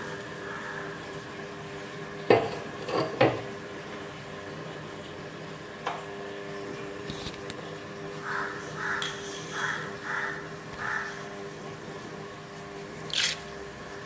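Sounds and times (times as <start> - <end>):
dish knocking against clay pot: 2.3 - 3.5.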